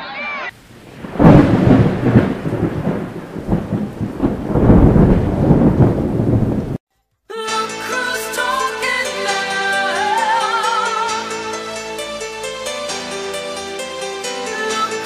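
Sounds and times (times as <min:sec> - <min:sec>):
rain-like hiss: 0:00.6 - 0:06.8
thunder clap and rumble: 0:00.6 - 0:06.8
music: 0:06.9 - 0:15.0.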